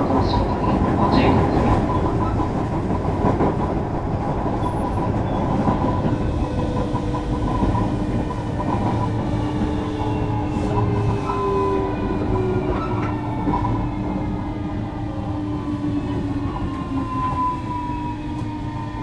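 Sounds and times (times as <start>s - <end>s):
train wheels clattering on rails: 0.0s - 14.8s.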